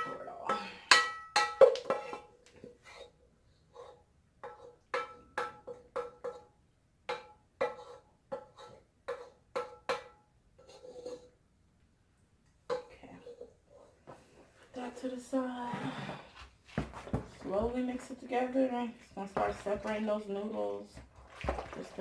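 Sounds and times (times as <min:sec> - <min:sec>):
spoon knocking metal saucepan: 0:00.0 - 0:02.3, 0:04.4 - 0:06.5, 0:07.1 - 0:10.2.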